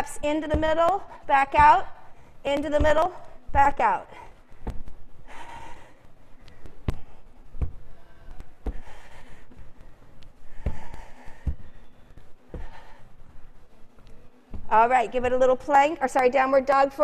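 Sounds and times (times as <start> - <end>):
soft rustling: 0.0 - 16.0
hands tapping the floor: 2.5 - 3.7, 4.5 - 5.0, 6.4 - 9.1.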